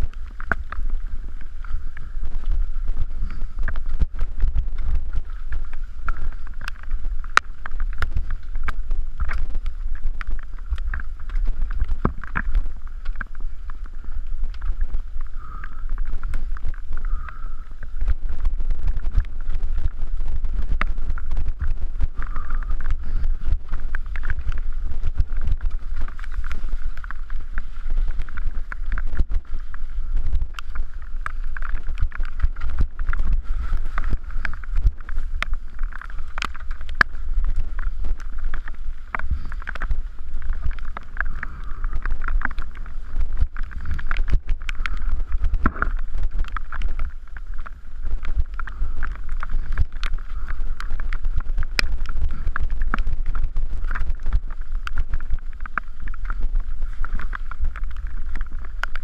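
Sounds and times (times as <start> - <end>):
wind rumble on microphone: 0.0 - 59.0.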